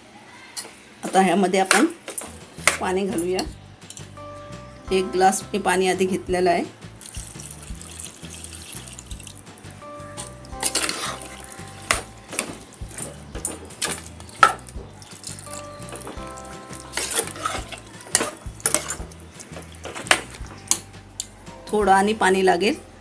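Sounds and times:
background music: 0:02.2 - 0:23.0
metal spoon stirring and scraping: 0:10.6 - 0:21.3.

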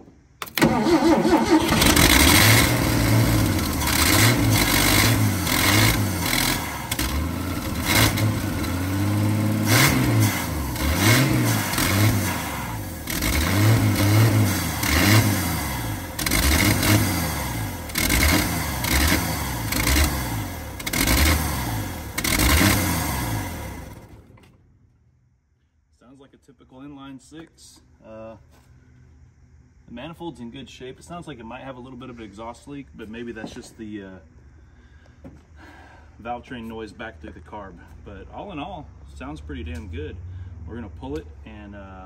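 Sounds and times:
engine revving rough: 0:00.6 - 0:24.2.

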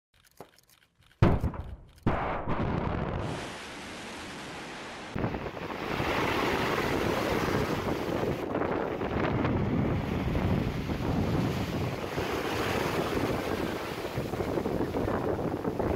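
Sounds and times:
surf breaking on shore: 0:03.1 - 0:15.9
wind buffeting microphone: 0:05.2 - 0:15.9.

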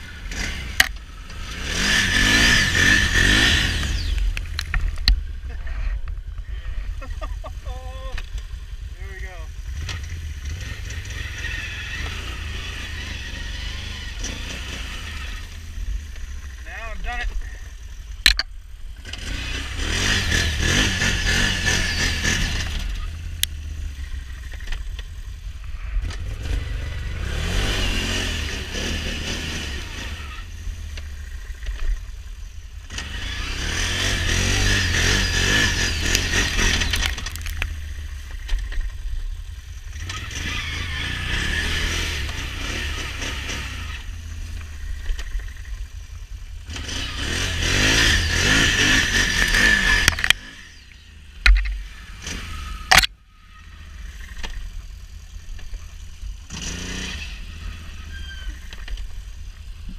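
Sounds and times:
engine revving: 0:00.0 - 0:59.9
tyres spinning in mud and snow: 0:33.1 - 0:37.8.

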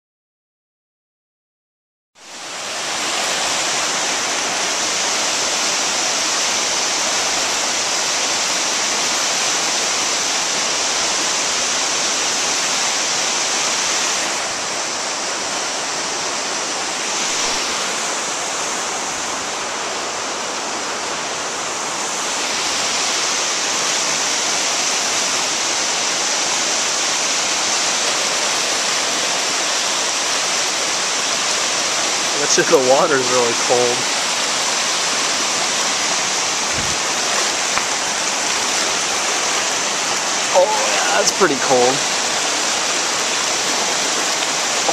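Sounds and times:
creek rushing over rocks: 0:02.2 - 0:44.9.

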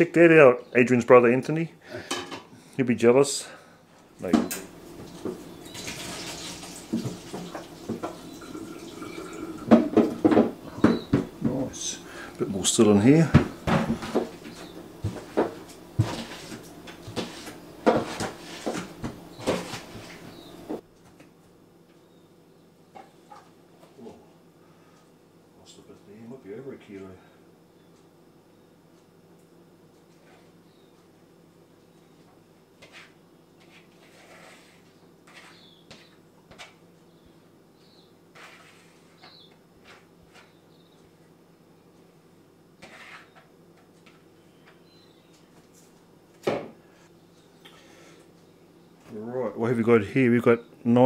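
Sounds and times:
steady low hum: 0:00.0 - 0:35.3.

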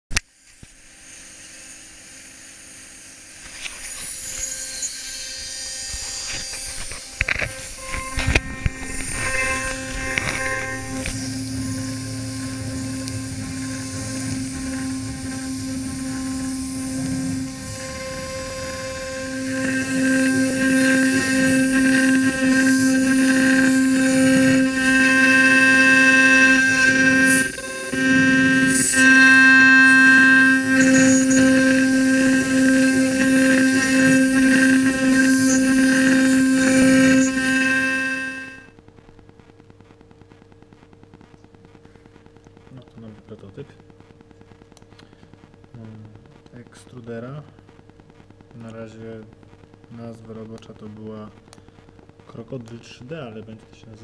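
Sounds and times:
mill cutting metal whine: 0:01.4 - 0:38.7.

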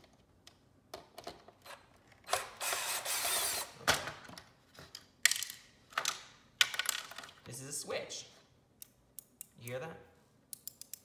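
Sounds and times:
drill-driver running: 0:02.6 - 0:03.7.

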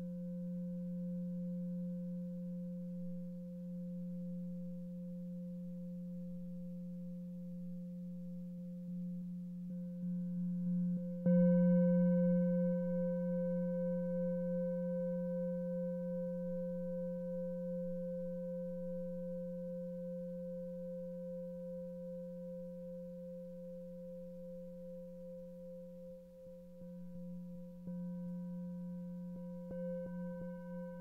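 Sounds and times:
singing bowl ringing: 0:26.8 - 0:31.0.

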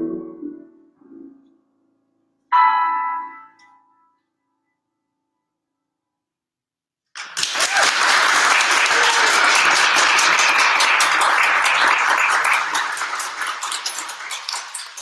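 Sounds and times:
audience applause: 0:07.1 - 0:15.0.

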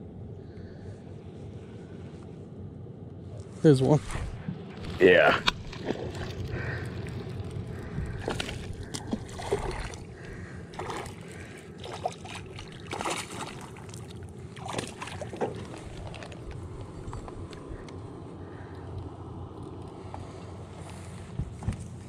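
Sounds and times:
steady low rumble: 0:00.0 - 0:22.0
fish splashing at water surface: 0:05.4 - 0:16.4.

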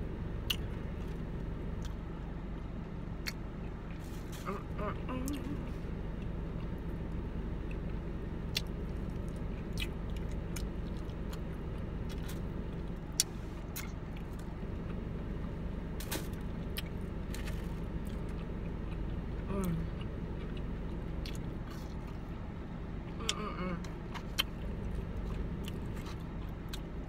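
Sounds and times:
low hum inside car: 0:00.0 - 0:27.0.

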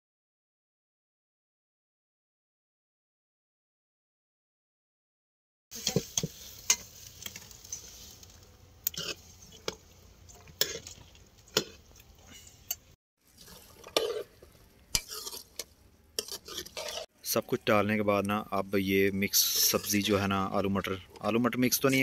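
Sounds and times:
ladle scraping metal pan: 0:13.4 - 0:17.1, 0:19.4 - 0:20.3.

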